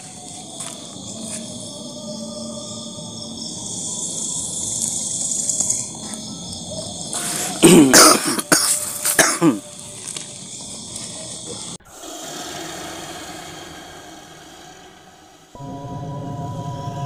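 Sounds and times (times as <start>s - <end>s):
night insects chirring: 0.0s - 17.0s
man coughing hard: 7.6s - 9.6s.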